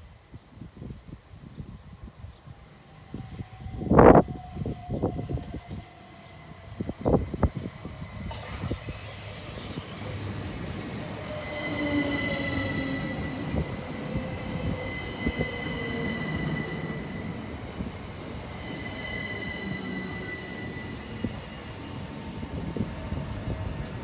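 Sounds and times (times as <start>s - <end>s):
high-pitched wheel squeal: 11.0s - 13.6s.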